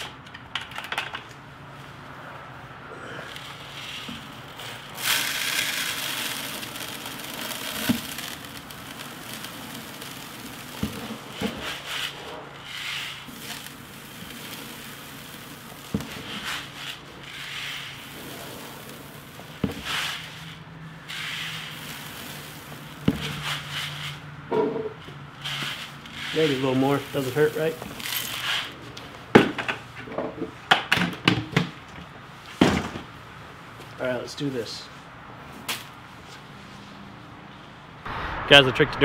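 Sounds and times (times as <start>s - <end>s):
granules pouring into plastic hopper: 5.0s - 12.1s, 12.7s - 20.2s.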